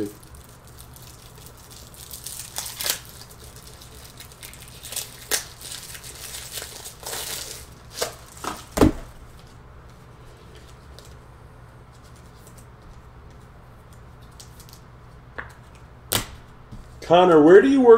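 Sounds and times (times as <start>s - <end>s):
wrappers crinkling: 0.0s - 9.6s.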